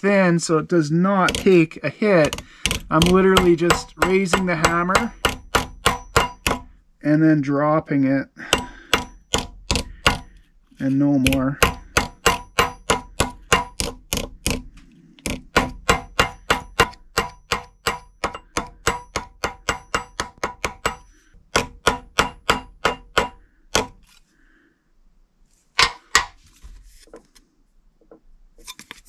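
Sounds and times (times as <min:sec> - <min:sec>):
hammer tapping on metal: 0:01.2 - 0:01.6, 0:02.2 - 0:06.7, 0:08.4 - 0:10.4, 0:11.2 - 0:24.0, 0:25.8 - 0:26.4.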